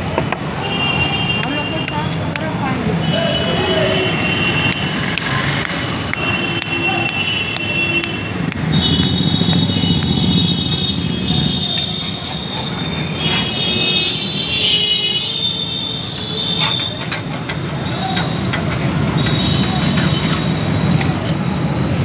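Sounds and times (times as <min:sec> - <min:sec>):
low rumble of traffic: 0:00.0 - 0:22.0
train wheels squealing on rails: 0:11.3 - 0:14.0.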